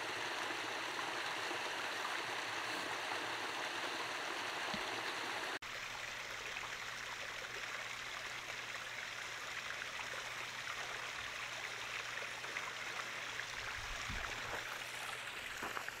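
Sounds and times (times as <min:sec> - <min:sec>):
stream water rushing: 0:00.0 - 0:06.2.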